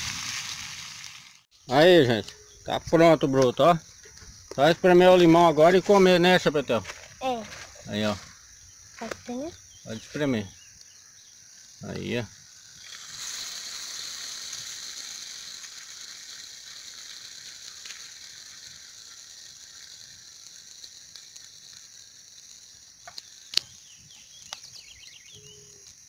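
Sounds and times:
fish sizzling in hot oil: 0:00.0 - 0:01.5, 0:08.3 - 0:26.0.

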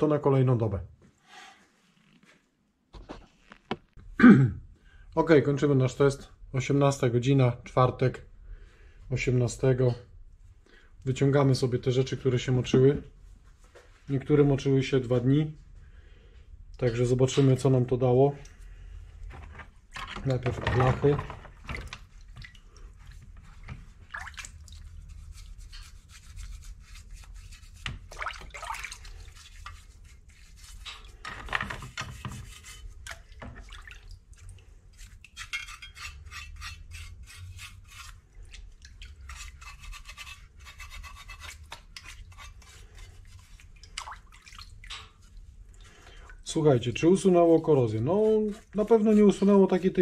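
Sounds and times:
rubbing and scraping on metal: 0:24.8 - 0:28.0, 0:29.0 - 0:33.0, 0:34.9 - 0:38.4, 0:39.2 - 0:43.7, 0:47.2 - 0:50.0.

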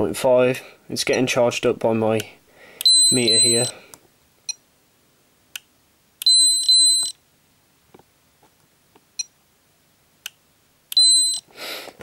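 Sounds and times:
high meter beep: 0:02.8 - 0:03.8, 0:06.2 - 0:07.2, 0:11.0 - 0:11.4.

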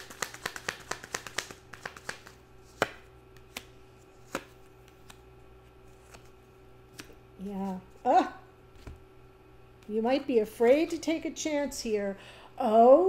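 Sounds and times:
cards shuffling: 0:00.0 - 0:08.0
faint steady hum: 0:00.0 - 0:13.0.

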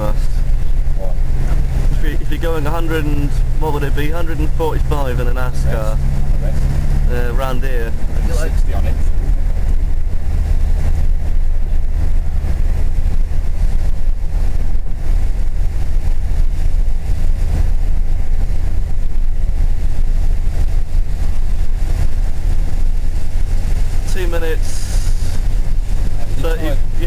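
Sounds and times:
engine and road drone: 0:00.0 - 0:27.0
tyres hissing on wet road: 0:19.5 - 0:27.0.

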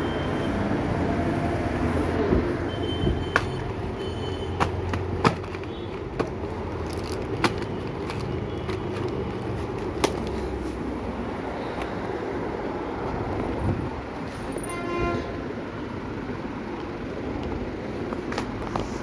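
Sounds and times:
taps and clicks of handled boxes: 0:03.3 - 0:03.7, 0:04.5 - 0:10.5.

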